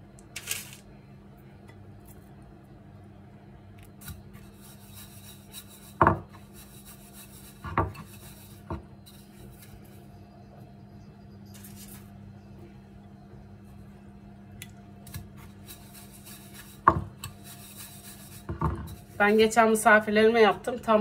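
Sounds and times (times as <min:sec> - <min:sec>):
seeds rustling in a ceramic bowl: 0:00.2 - 0:00.9, 0:03.9 - 0:10.1, 0:11.5 - 0:12.2, 0:15.3 - 0:20.0.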